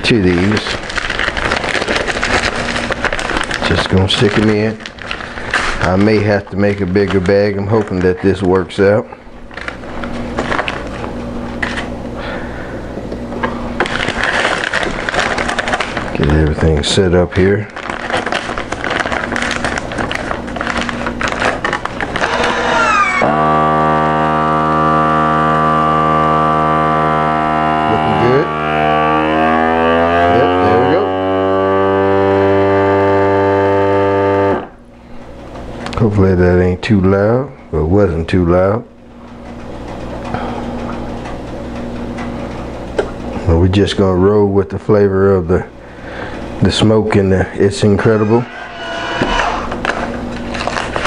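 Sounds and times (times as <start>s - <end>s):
plastic bag crinkling: 0.0s - 12.0s, 13.8s - 23.2s, 49.7s - 51.0s
low hum: 0.0s - 36.0s, 45.7s - 51.0s.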